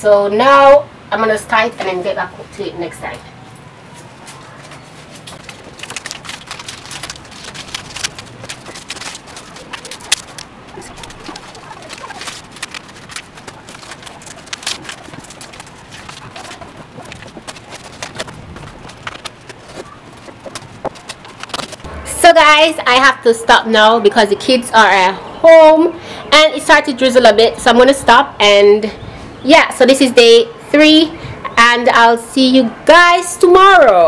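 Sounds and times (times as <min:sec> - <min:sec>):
ribbon rustling and clicking: 0:05.1 - 0:21.9.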